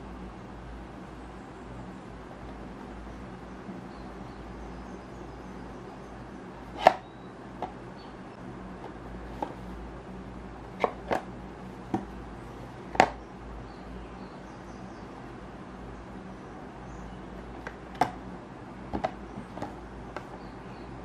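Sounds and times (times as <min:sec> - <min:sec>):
cardboard box taps and clicks: 0:11.9 - 0:12.2.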